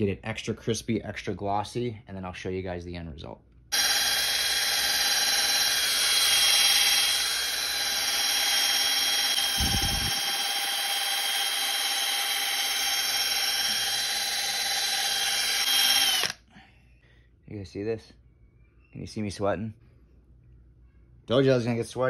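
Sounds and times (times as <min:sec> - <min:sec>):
cordless drill motor whine: 0:03.7 - 0:16.4.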